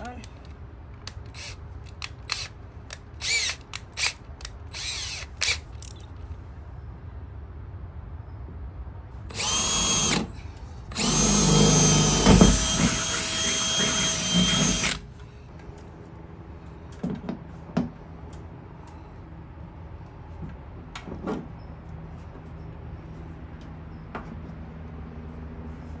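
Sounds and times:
drill whining through metal: 0:01.3 - 0:02.5, 0:03.2 - 0:05.6, 0:09.3 - 0:10.3, 0:10.9 - 0:15.0.

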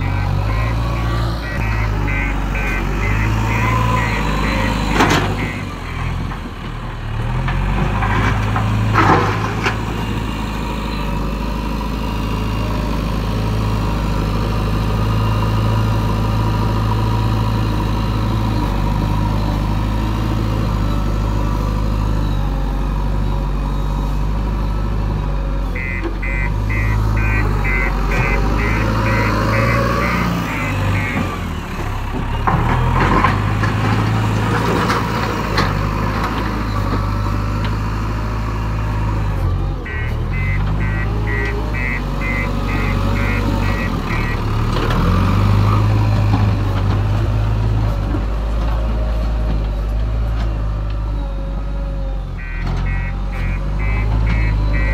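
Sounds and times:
reversing alarm beeping: 0:00.0 - 0:06.4, 0:25.7 - 0:32.4, 0:39.8 - 0:44.8, 0:52.4 - 0:54.9
diesel engine running: 0:00.0 - 0:54.9.

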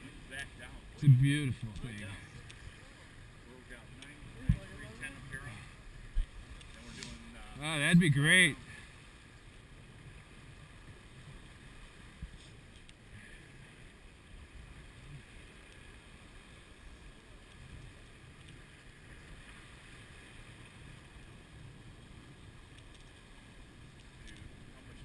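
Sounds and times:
water rushing along hull: 0:00.0 - 0:25.0
wind rumble on microphone: 0:04.2 - 0:07.3.

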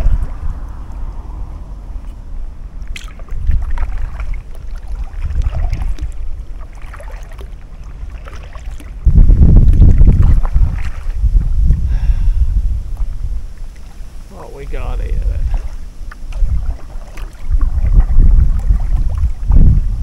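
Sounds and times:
wind buffeting microphone: 0:00.0 - 0:20.0
paddle strokes splashing: 0:01.8 - 0:11.8, 0:12.8 - 0:19.8.

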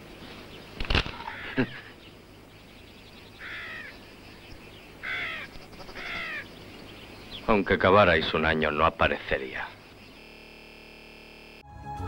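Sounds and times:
crows cawing: 0:01.0 - 0:02.0, 0:03.4 - 0:04.1, 0:05.0 - 0:06.7.

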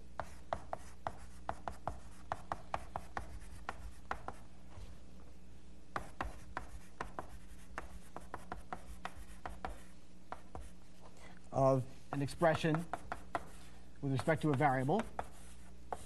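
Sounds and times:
low room hum: 0:00.0 - 0:16.0
chalk tapping and scraping: 0:00.2 - 0:04.9, 0:06.0 - 0:11.1, 0:12.1 - 0:16.0.

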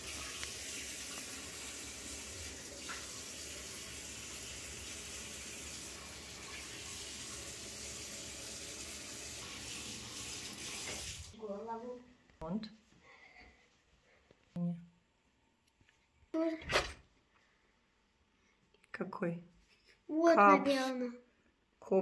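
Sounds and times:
running water rushing: 0:00.0 - 0:11.4.

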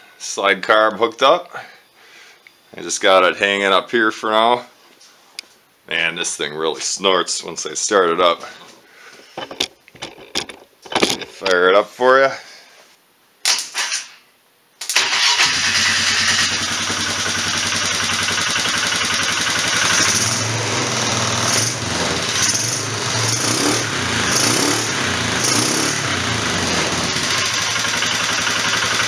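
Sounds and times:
atv engine running: 0:15.6 - 0:29.0.

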